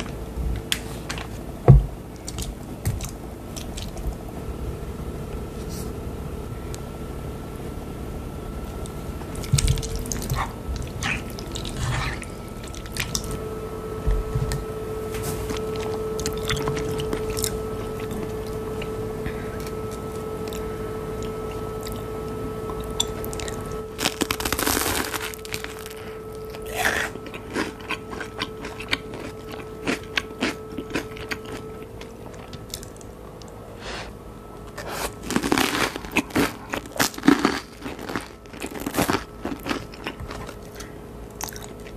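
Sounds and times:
steady hum: 0:00.0 - 0:41.9
crunching bites of toasted bread: 0:22.8 - 0:31.7, 0:34.8 - 0:41.9.

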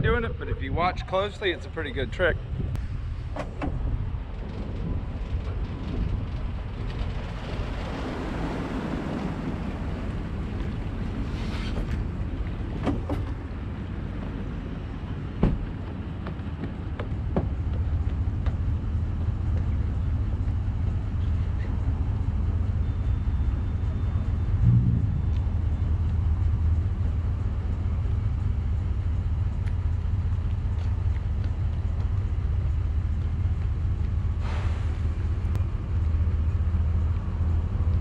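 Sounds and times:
engine idling: 0:12.0 - 0:38.0.

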